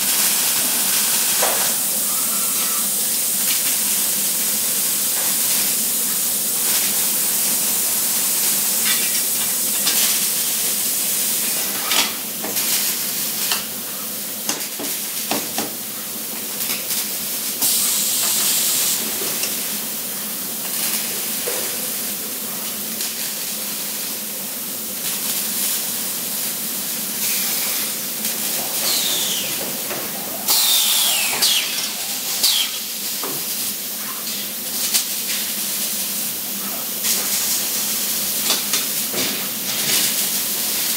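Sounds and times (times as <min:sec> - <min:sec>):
welding arc sizzling hiss: 0:00.0 - 0:40.9
short falling squeals: 0:28.9 - 0:29.6.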